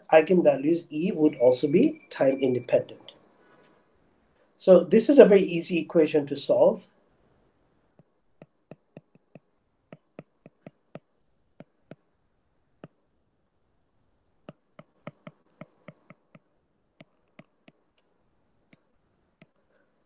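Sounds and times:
stylus clicking on glass screen: 0:08.0 - 0:12.1, 0:14.4 - 0:18.1.

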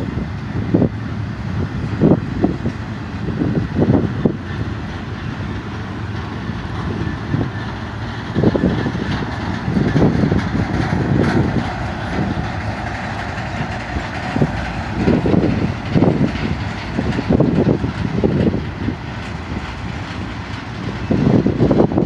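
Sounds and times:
freight train rolling past: 0:00.0 - 0:22.0.

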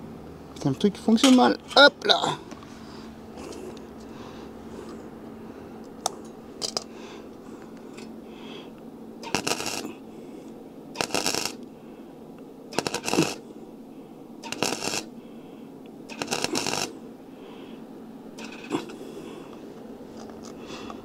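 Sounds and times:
welding arc crackling: 0:09.2 - 0:10.0, 0:10.9 - 0:11.7, 0:12.7 - 0:13.5, 0:14.4 - 0:15.1, 0:16.1 - 0:17.0, 0:18.4 - 0:19.0.

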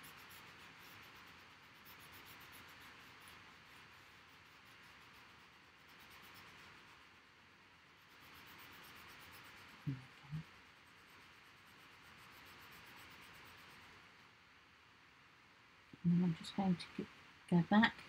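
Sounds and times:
pencil scratching on paper: 0:00.0 - 0:07.3, 0:07.9 - 0:14.2.

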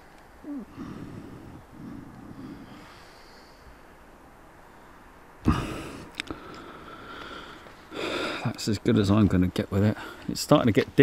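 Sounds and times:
person breathing sharply: 0:00.0 - 0:04.0, 0:04.6 - 0:08.4.

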